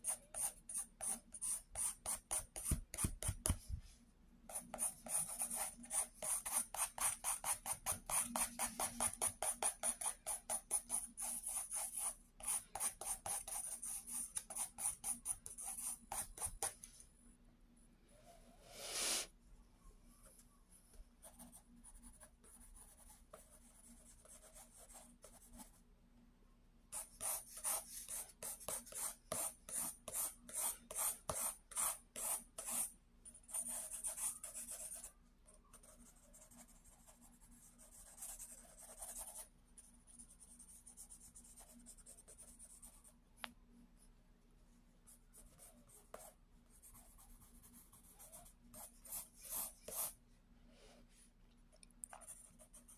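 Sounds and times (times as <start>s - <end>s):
pencil scratching on paper: 0.0s - 3.6s, 4.5s - 16.8s, 21.2s - 25.7s, 27.0s - 35.1s, 35.7s - 43.0s, 45.3s - 50.2s.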